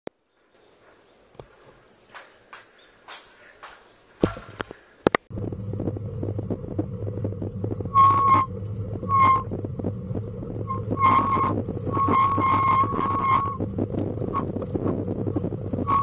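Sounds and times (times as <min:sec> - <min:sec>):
trailer wheels rumbling and rattling: 0:05.3 - 0:16.0
short high squeaks: 0:07.8 - 0:09.5, 0:10.6 - 0:14.5.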